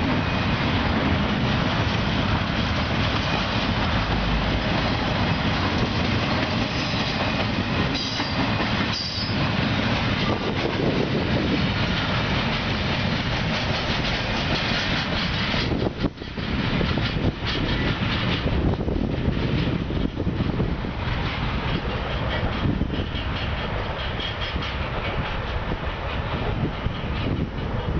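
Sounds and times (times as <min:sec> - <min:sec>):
freight train wheels clattering: 0:00.0 - 0:27.9
high wheel squeal: 0:06.7 - 0:09.5.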